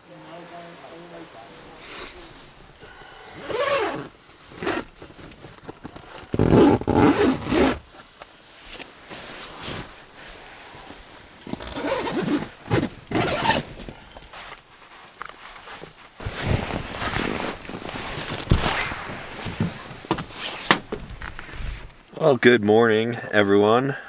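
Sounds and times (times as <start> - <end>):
fabric rustling: 0.3 - 22.1
zipper pulls: 3.4 - 7.8, 11.4 - 13.9, 16.2 - 21.9.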